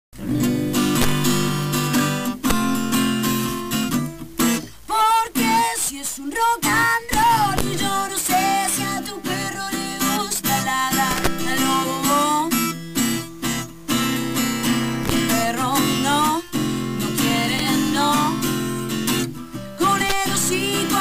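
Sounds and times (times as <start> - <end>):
strummed acoustic guitar: 0.2 - 21.0
person singing: 4.8 - 12.6, 15.1 - 18.7, 19.6 - 21.0.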